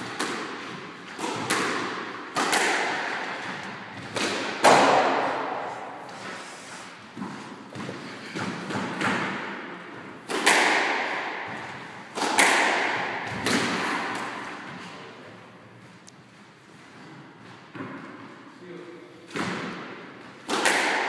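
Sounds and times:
squash ball hits: 0:00.0 - 0:06.2, 0:07.1 - 0:14.7, 0:19.3 - 0:21.0.

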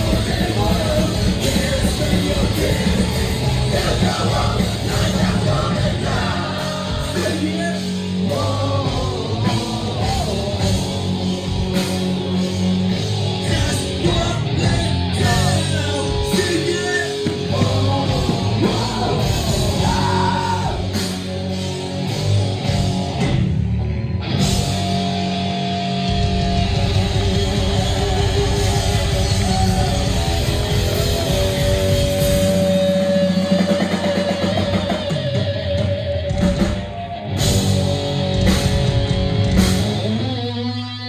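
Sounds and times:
person singing: 0:00.0 - 0:11.5, 0:13.4 - 0:21.0
drums: 0:00.0 - 0:41.0
electric guitars: 0:00.0 - 0:41.0.

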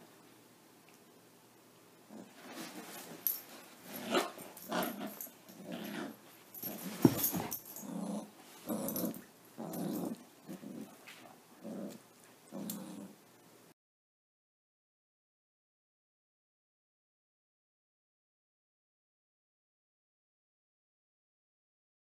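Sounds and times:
dogs play-growling: 0:02.1 - 0:13.2.

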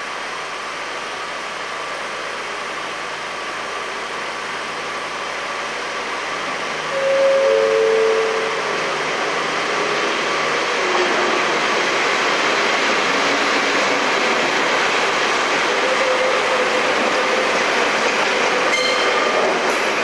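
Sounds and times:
railbus running: 0:00.0 - 0:20.0
two-note train horn: 0:06.9 - 0:08.8, 0:15.8 - 0:16.8, 0:18.7 - 0:19.4.

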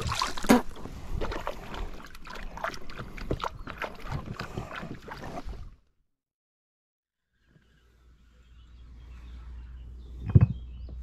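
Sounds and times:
water splashing against boat hull: 0:00.0 - 0:05.8.

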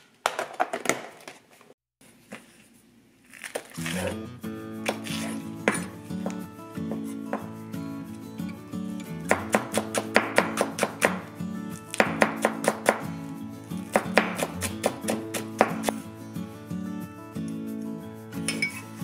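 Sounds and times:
background guitar music: 0:03.8 - 0:19.0
knife chopping on wooden board: 0:04.9 - 0:07.5, 0:09.3 - 0:11.2, 0:11.9 - 0:13.1, 0:13.8 - 0:16.0.

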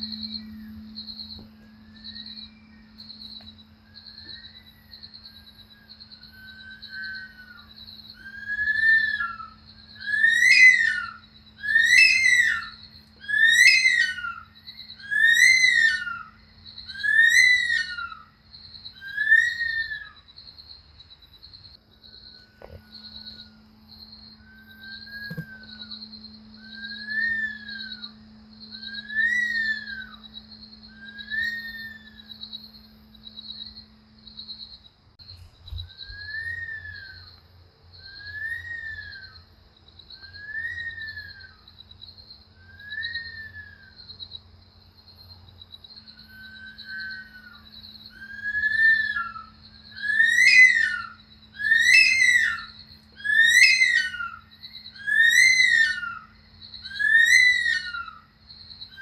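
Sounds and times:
bird whistled calls: 0:06.2 - 0:18.3, 0:24.4 - 0:26.0, 0:26.6 - 0:28.2, 0:28.8 - 0:30.3, 0:30.9 - 0:32.3, 0:35.7 - 0:37.3, 0:38.1 - 0:39.4, 0:40.2 - 0:41.6, 0:42.6 - 0:44.0, 0:46.3 - 0:58.3.

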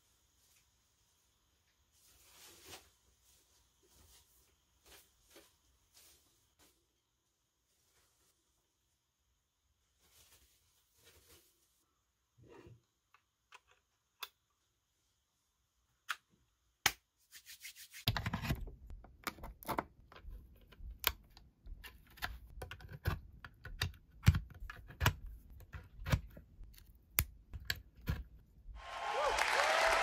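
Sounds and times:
faint room hiss: 0:00.0 - 0:12.4.

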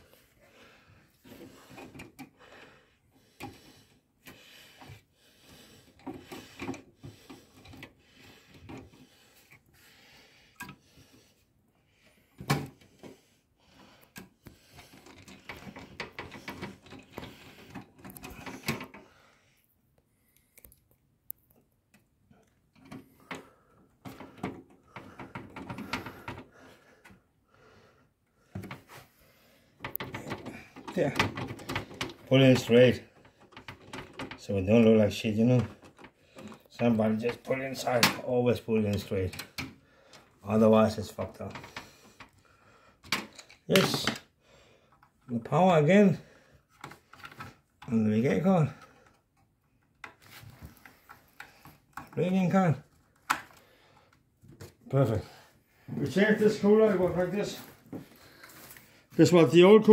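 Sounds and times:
hands clicking and rustling parts: 0:01.1 - 0:02.6, 0:03.2 - 0:09.9, 0:10.5 - 0:11.5, 0:12.2 - 0:19.2, 0:19.9 - 0:27.3, 0:28.4 - 0:45.9, 0:46.6 - 0:55.2
plastic and metal parts tapping: 0:14.0 - 0:19.1, 0:22.7 - 0:27.2, 0:29.8 - 0:38.2, 0:38.9 - 0:42.4, 0:43.0 - 0:44.3, 0:46.7 - 0:48.0, 0:48.7 - 0:52.2, 0:52.8 - 0:54.8.

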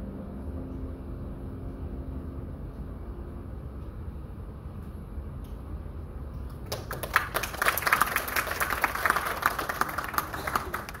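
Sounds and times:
audience clapping: 0:06.5 - 0:11.0.

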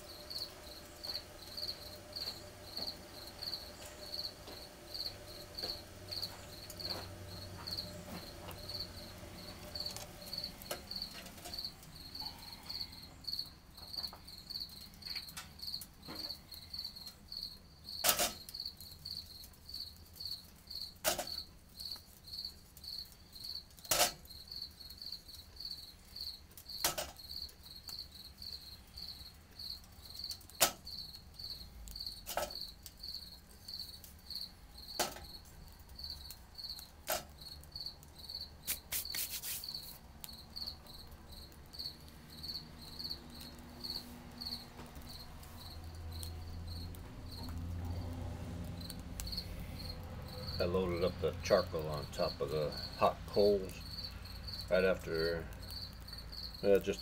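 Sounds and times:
cricket chirping: 0:00.0 - 0:57.0
charcoal clacking into tin stove: 0:18.0 - 0:18.5, 0:21.0 - 0:21.4, 0:23.8 - 0:24.3, 0:26.7 - 0:27.2, 0:30.3 - 0:30.9, 0:31.9 - 0:33.0, 0:34.9 - 0:35.6, 0:36.9 - 0:37.4.

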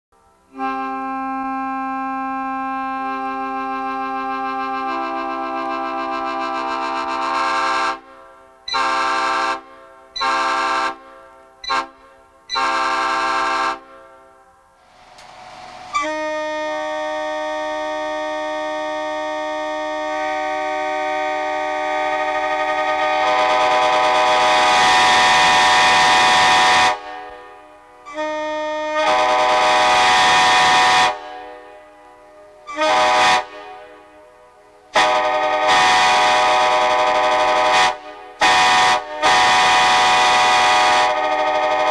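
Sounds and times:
train horn chord: 0:00.5 - 0:14.6, 0:15.9 - 0:41.9.

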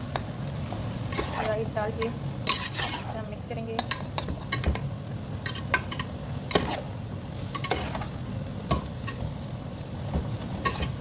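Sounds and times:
boiling liquid hissing: 0:00.0 - 0:11.0
ladle scraping a metal pot: 0:01.1 - 0:01.6, 0:02.4 - 0:03.2, 0:05.5 - 0:06.9, 0:07.6 - 0:08.1.

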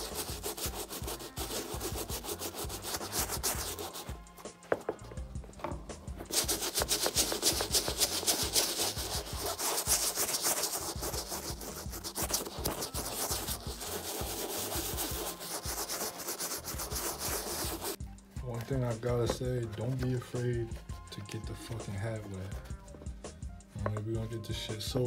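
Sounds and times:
toothbrush scrubbing fabric: 0:00.0 - 0:04.3, 0:06.2 - 0:18.0.

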